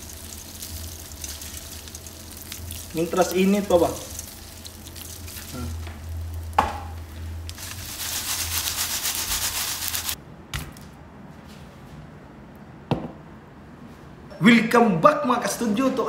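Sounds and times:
crispy pieces rattling together: 0.0s - 6.6s, 7.5s - 10.2s.

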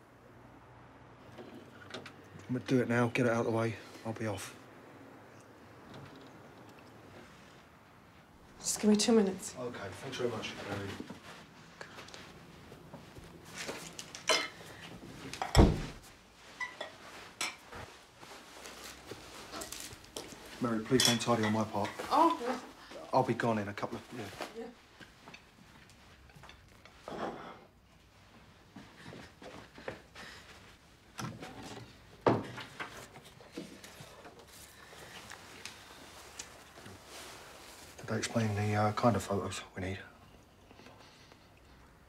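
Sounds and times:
crockery and cutlery clinking: 14.1s - 14.8s, 16.6s - 17.9s, 20.8s - 22.4s.

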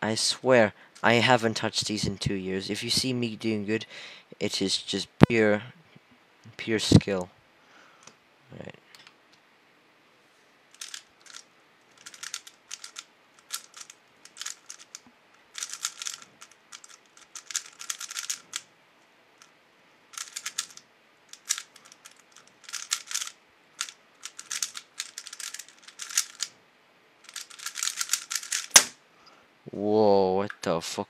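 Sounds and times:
puzzle cube plastic clicking: 10.8s - 18.7s, 20.1s - 26.5s, 27.3s - 28.9s.

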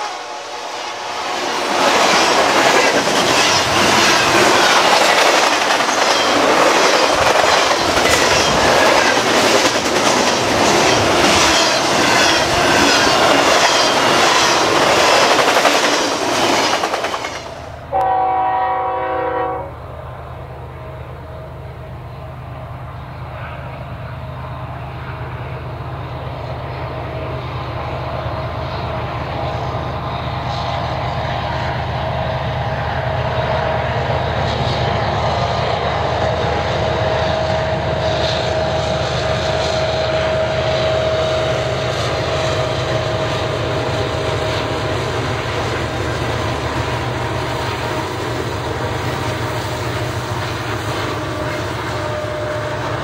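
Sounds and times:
diesel locomotive engine rumble: 0.0s - 53.0s.

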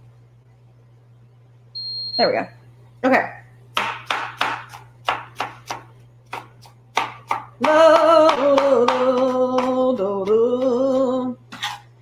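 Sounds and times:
knife chopping onion on board: 3.7s - 11.8s
woman singing long notes: 7.6s - 11.4s.

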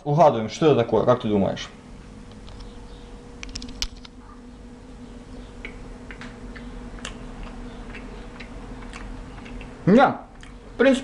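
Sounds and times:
chewing crunches: 5.6s - 10.6s.

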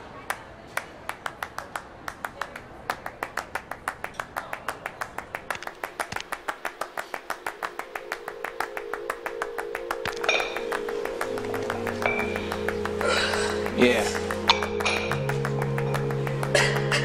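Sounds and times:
musical drone: 5.8s - 17.0s
bright chime: 8.0s - 16.2s.

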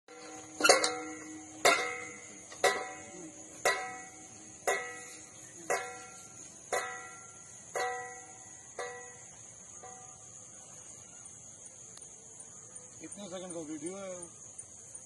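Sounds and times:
metal exercise machine clanking: 0.1s - 5.1s.

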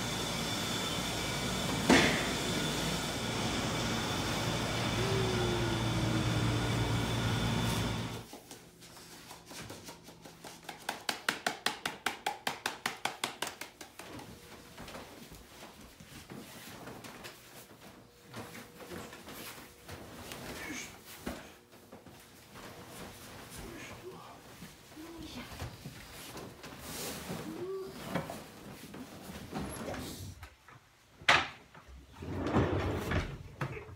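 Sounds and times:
low machine hum: 0.0s - 8.3s.

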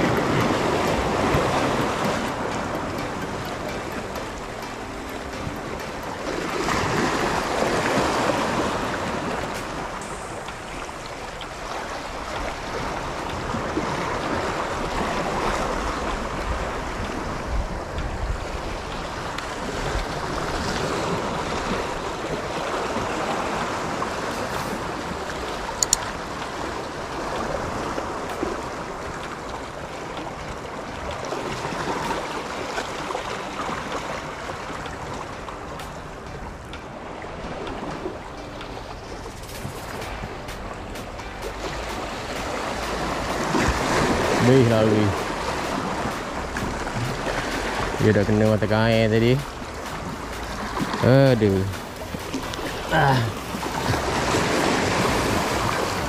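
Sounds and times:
sea waves washing against rocks: 0.0s - 56.0s
sharp click: 25.8s - 26.1s.

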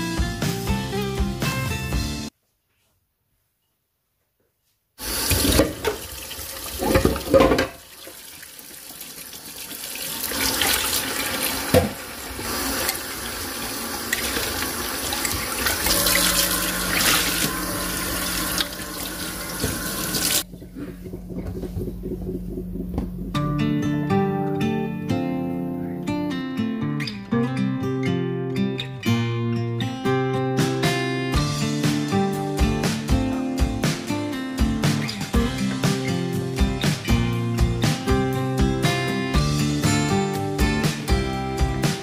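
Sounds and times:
tap water running into steel sink: 5.0s - 21.8s
dishes knocking and clattering: 5.4s - 6.1s, 6.8s - 7.8s.

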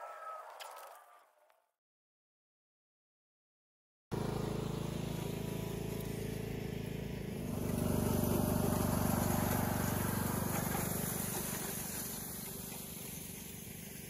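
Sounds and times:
riding mower engine passing: 4.1s - 14.0s
grader scraping over gravel: 4.2s - 14.0s.

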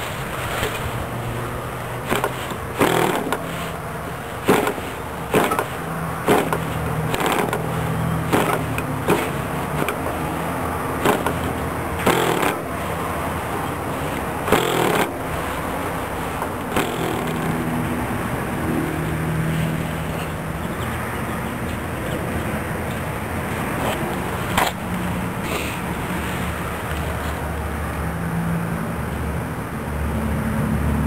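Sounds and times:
model engine firing pops: 4.5s - 5.7s.

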